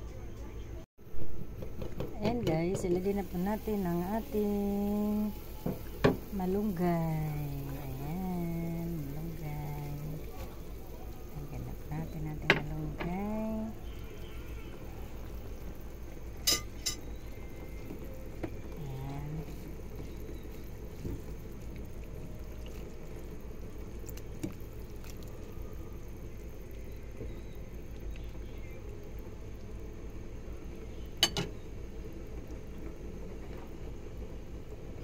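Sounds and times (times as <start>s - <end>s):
broth boiling: 1.0s - 35.0s
ladle clinking against pot: 16.4s - 17.0s, 31.2s - 31.5s.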